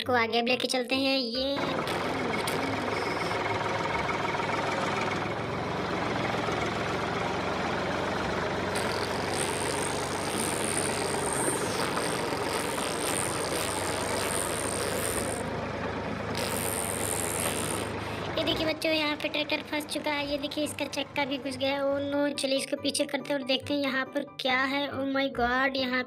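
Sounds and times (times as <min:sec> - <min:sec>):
toy tractor engine running: 0:01.6 - 0:20.7.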